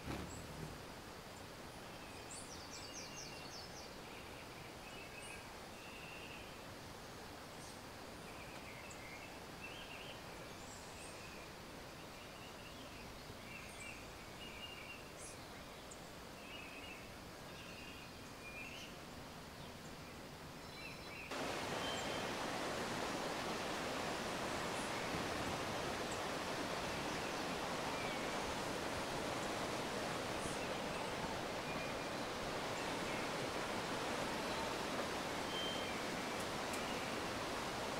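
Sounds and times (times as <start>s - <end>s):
mountain stream rushing: 0.0s - 2.0s, 21.3s - 37.9s.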